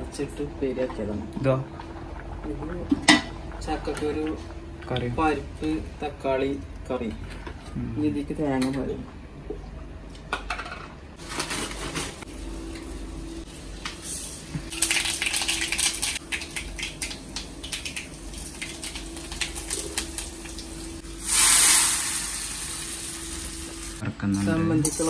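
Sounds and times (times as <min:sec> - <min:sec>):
steady low hum: 0:00.0 - 0:14.8
loud sizzling hiss: 0:21.1 - 0:24.0.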